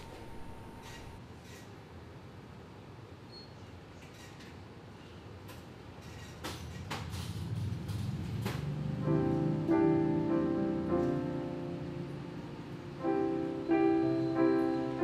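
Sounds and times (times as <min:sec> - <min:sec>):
soft piano music: 0:08.6 - 0:15.0.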